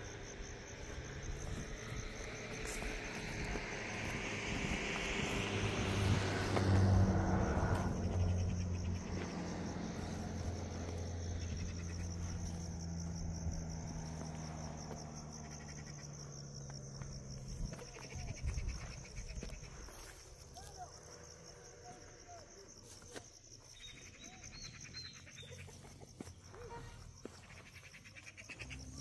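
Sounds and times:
vehicle engine passing: 0.0 - 23.0, 23.9 - 29.0
crickets chirping: 0.0 - 29.0.

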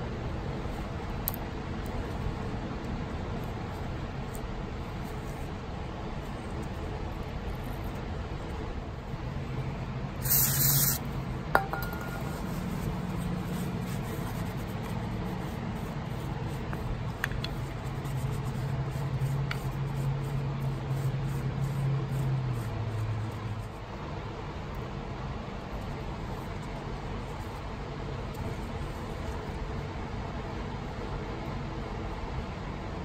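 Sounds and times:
steady low hum: 0.0 - 33.0
spray hiss: 10.2 - 11.0.

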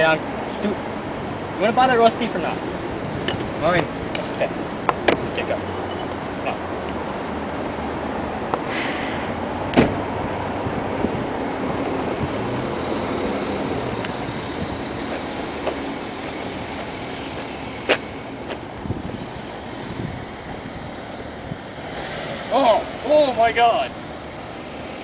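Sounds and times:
minivan engine running: 0.0 - 25.0
outdoor rush: 0.0 - 25.0
car door shutting: 8.6 - 10.1.

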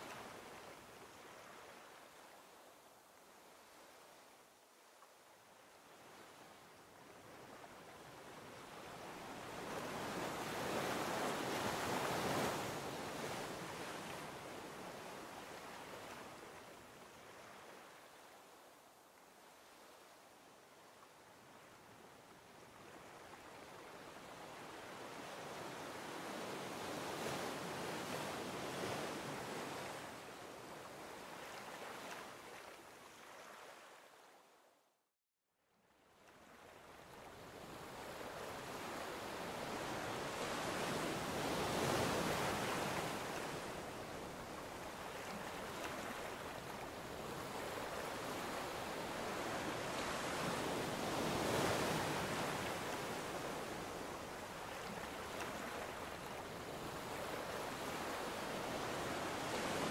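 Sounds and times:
ocean surf washing on shore: 37.3 - 59.9.

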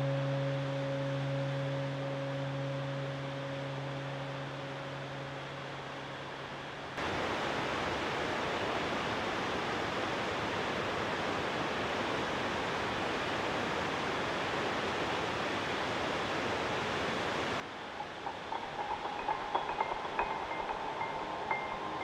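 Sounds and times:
water rushing: 6.9 - 22.0
soft chime-like music: 17.8 - 22.0.

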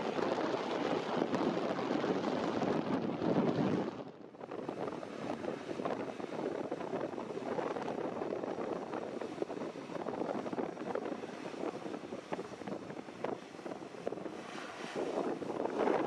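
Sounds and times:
wind buffeting microphone: 0.0 - 16.0.

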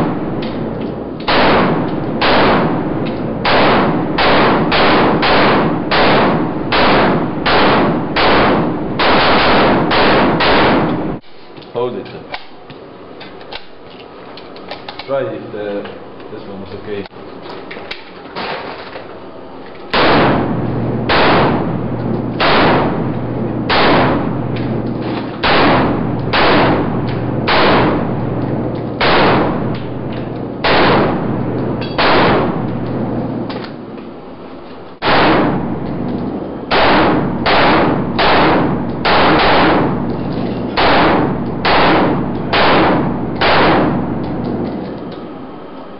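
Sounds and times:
rifle gunshots echoing indoors: 0.0 - 11.2, 19.9 - 33.6, 35.0 - 44.7.

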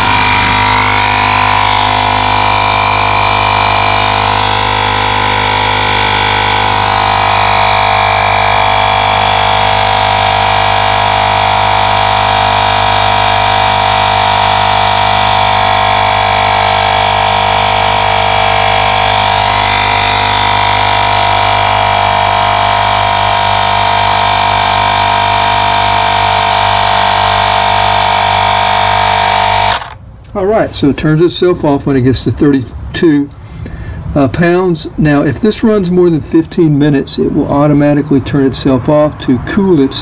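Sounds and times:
tire inflator compressor running: 0.0 - 30.3, 33.3 - 34.1.

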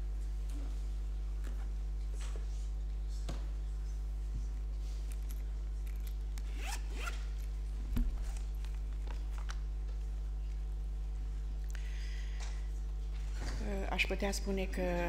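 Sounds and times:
low electrical hum: 0.0 - 15.0
microphone handling rustles and clicks: 7.0 - 9.7
soft thump: 7.9 - 8.2.

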